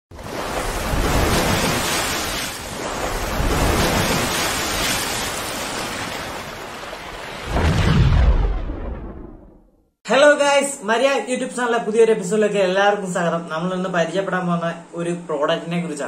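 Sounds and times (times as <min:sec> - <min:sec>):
deep boom: 0:07.5 - 0:09.7.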